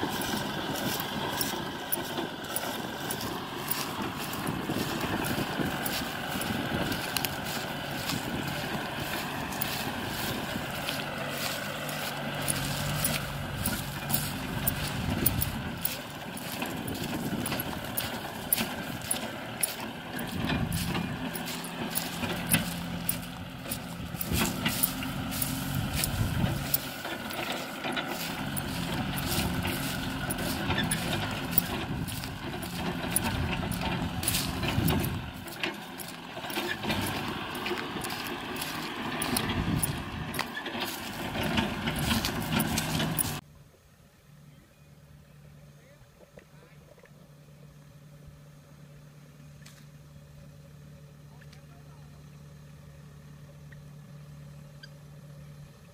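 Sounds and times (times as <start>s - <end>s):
sharp ticks and rattles: 0.0s - 43.4s
tractor diesel engine under load: 0.0s - 43.5s, 47.2s - 55.9s.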